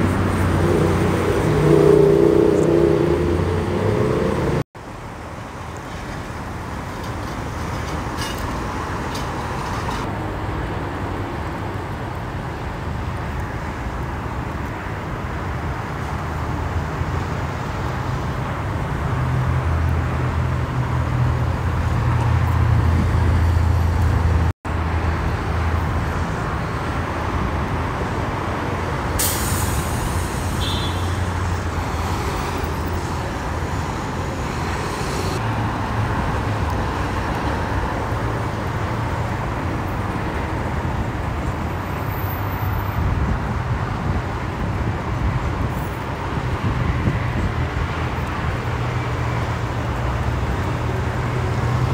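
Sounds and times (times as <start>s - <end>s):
truck engine drone: 0.0s - 5.7s
heavy freeway traffic: 0.0s - 51.9s.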